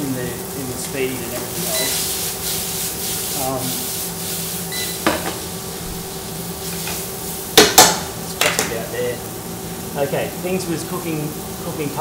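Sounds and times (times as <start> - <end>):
fish sizzling in a frying pan: 0.0 - 12.0
tongs clanking on pan: 6.6 - 8.8.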